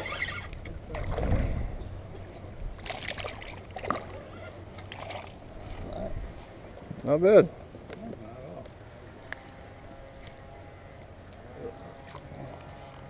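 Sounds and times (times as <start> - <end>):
water noise: 0.0 - 13.0
water splashing: 2.8 - 6.8, 9.0 - 13.0.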